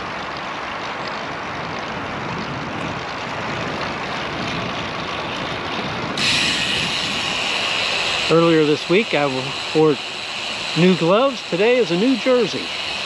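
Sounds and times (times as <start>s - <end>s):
bike tires rolling on concrete: 0.0s - 13.0s
wind on microphone: 1.3s - 11.1s.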